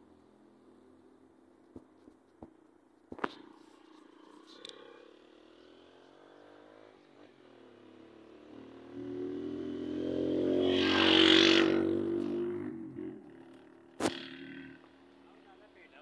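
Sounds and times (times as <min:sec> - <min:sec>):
vehicle engine passing: 0:03.8 - 0:15.8.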